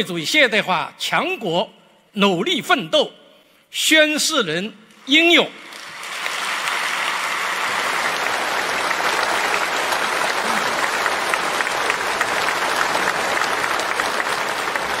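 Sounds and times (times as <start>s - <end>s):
audience applauding: 5.6s - 15.0s.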